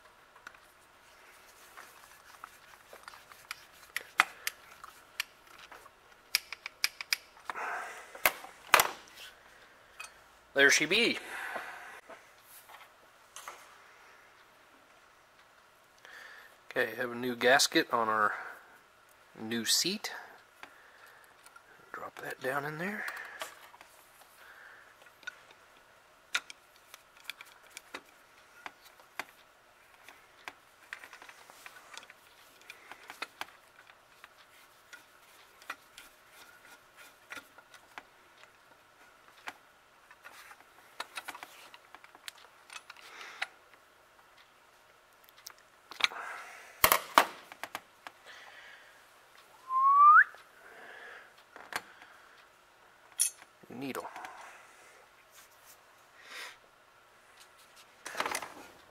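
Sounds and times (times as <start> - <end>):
screwdriver clicking and scraping metal: 1.5 - 7.3, 26.4 - 29.3
short rising whistle: 49.6 - 50.4.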